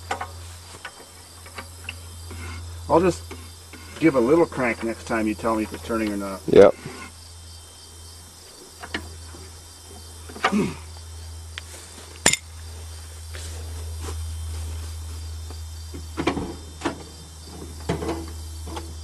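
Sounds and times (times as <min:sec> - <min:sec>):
insects chirping: 0:00.0 - 0:19.0
sharp clicks and knocks: 0:08.8 - 0:09.1.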